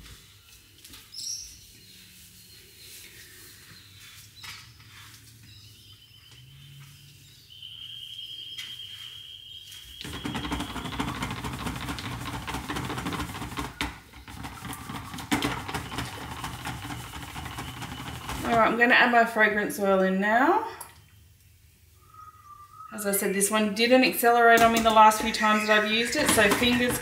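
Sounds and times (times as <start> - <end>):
stick blender motor whirring: 10.0 - 18.8, 24.6 - 27.0
batter churning: 10.0 - 18.9, 24.6 - 27.0.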